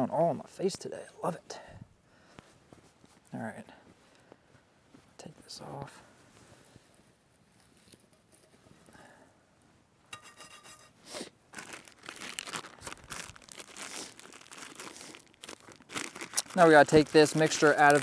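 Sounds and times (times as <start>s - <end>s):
plastic bag crinkling: 11.5s - 18.0s.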